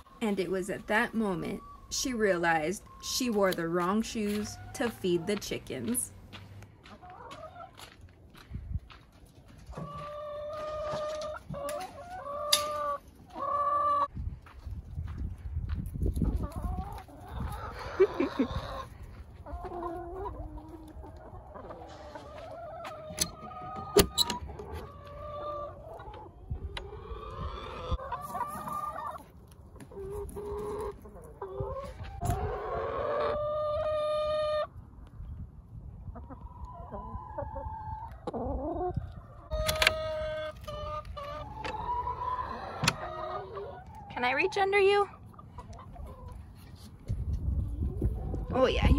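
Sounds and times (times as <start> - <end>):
chickens clucking: 0.0 - 48.9.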